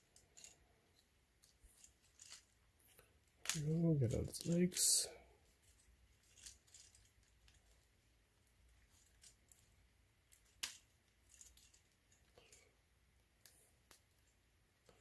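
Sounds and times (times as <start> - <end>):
plastic toy parts clicking: 0.0 - 4.8, 6.2 - 7.9, 8.8 - 12.6.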